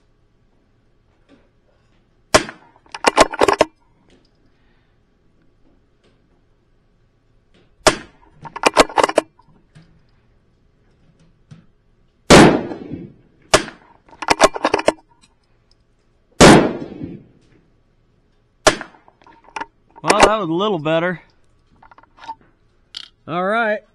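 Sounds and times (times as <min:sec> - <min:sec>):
rifle shots: 0:02.3 - 0:03.7, 0:07.8 - 0:09.2, 0:12.3 - 0:15.0, 0:16.4 - 0:17.3, 0:18.6 - 0:19.1
metallic clicks of rifle action: 0:02.4 - 0:04.4, 0:07.5 - 0:10.2, 0:13.5 - 0:16.1, 0:18.3 - 0:23.2.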